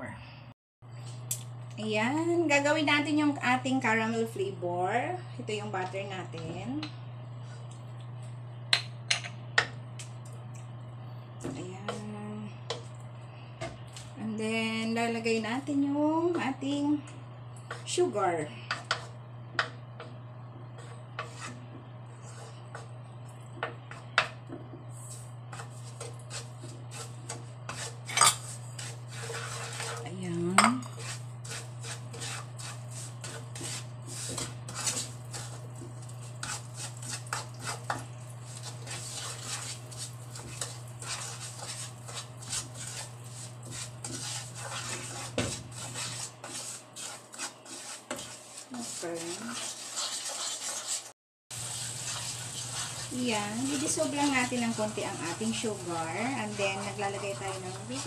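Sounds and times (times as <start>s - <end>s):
steady low hum: 0.0s - 49.9s, 51.7s - 58.0s
wooden spatula scraping a pan: 11.4s - 13.0s, 13.6s - 58.0s.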